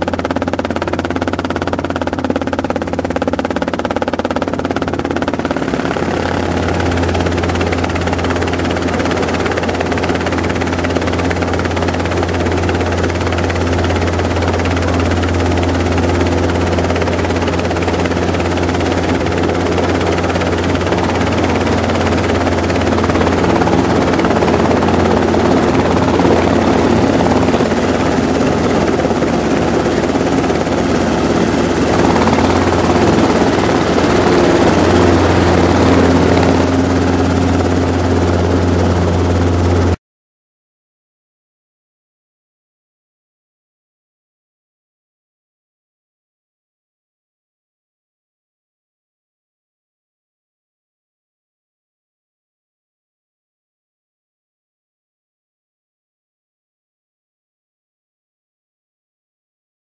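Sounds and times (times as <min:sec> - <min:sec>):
helicopter engine and rotor: 0:00.0 - 0:40.0.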